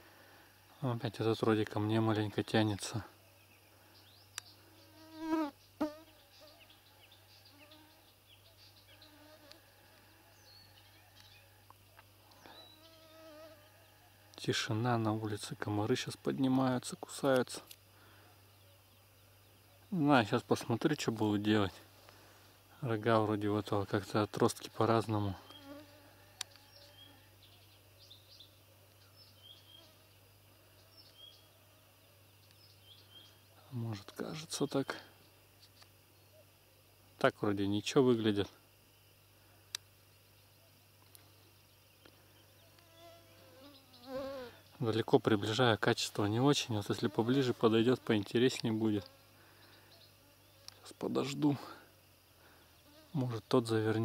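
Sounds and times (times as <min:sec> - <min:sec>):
mosquitoes whining: 0:12.4 - 0:14.1, 0:25.1 - 0:27.5, 0:42.6 - 0:44.7
mosquito whining: 0:42.8 - 0:44.6.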